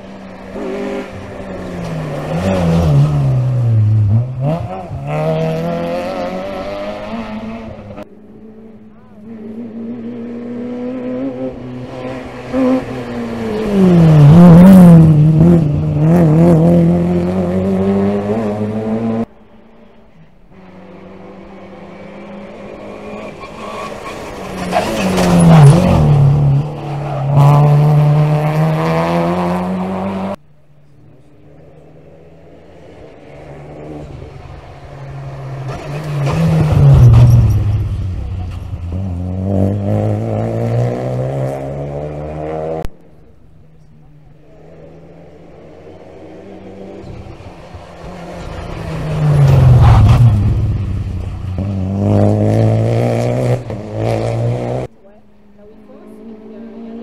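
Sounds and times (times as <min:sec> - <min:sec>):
rally cars passing at speed: 0:00.0 - 0:57.0.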